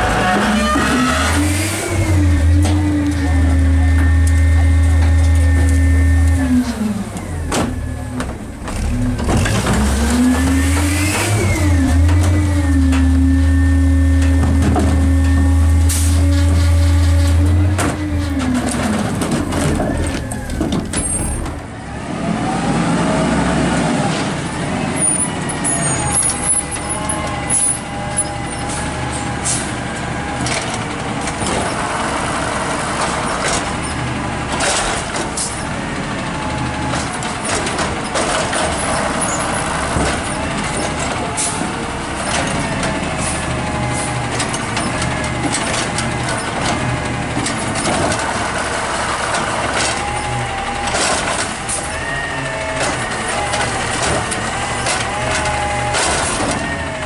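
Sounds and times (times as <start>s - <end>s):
diesel engine revving: 0.0s - 57.0s
rear-loading garbage truck: 0.0s - 57.0s
sharp noises of carts handled: 25.0s - 57.0s
hydraulic arm whine: 47.4s - 57.0s.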